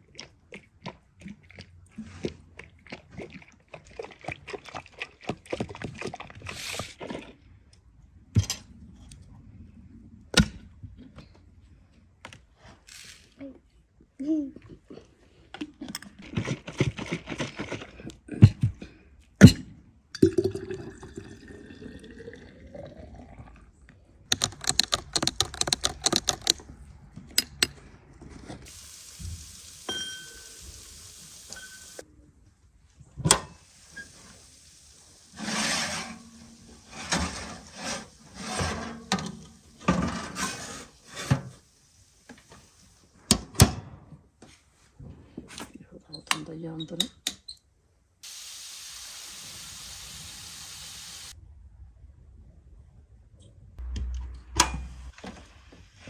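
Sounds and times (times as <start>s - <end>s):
liquid pouring into jug: 20.2s - 23.4s
short rubbing and knocking: 24.3s - 26.6s
steady hiss: 28.7s - 32.0s, 33.6s - 40.0s, 48.2s - 51.4s
glass and plastic clinking: 29.9s - 30.5s.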